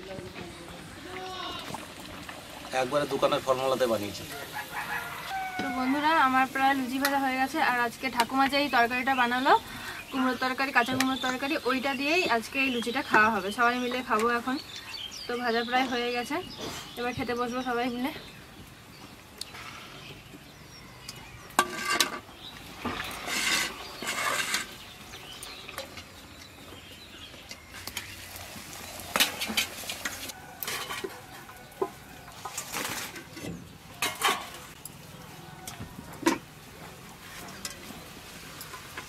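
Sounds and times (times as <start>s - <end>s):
metal scraping: 21.6s - 22.3s, 22.9s - 24.8s
metal bowls clinking: 29.2s - 33.4s, 34.0s - 34.7s.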